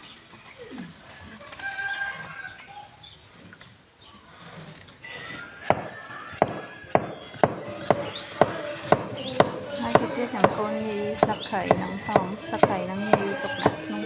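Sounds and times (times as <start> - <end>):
cleaver chopping on wooden block: 5.7 - 10.6, 11.2 - 13.9.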